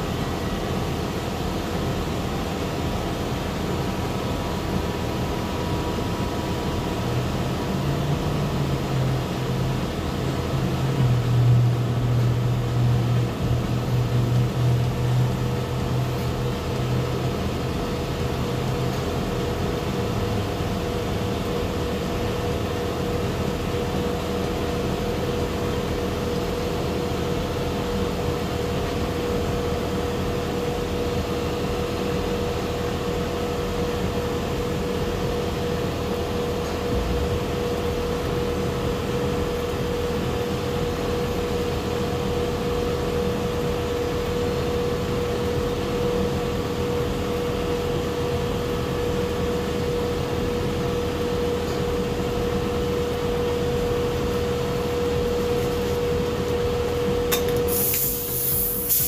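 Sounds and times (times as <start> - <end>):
machinery and air running noise: 0.0 - 59.0
deep hum: 36.7 - 39.3
steady high tone: 36.8 - 38.2.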